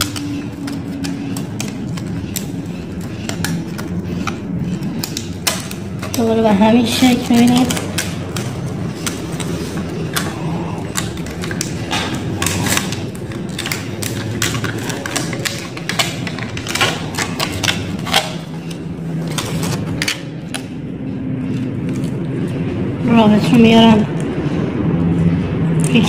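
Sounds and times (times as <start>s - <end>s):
paper rustling: 0.0s - 20.7s
steady low hum: 0.0s - 26.0s.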